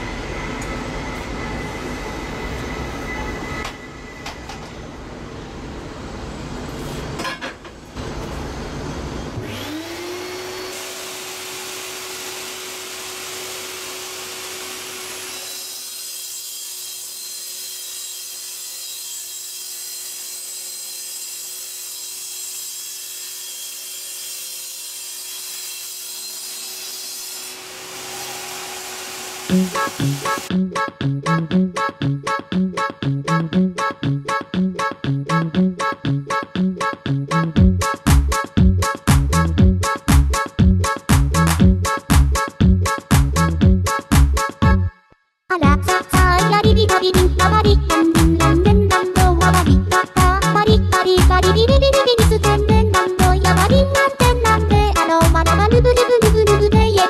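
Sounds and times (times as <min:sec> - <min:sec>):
miter saw motor whine: 0:08.0 - 0:16.1, 0:27.3 - 0:30.5
saw blade cutting aluminum: 0:09.4 - 0:30.5.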